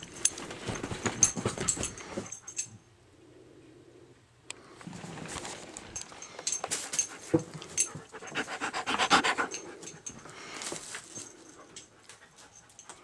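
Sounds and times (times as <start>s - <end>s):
dog panting: 7.0s - 10.2s.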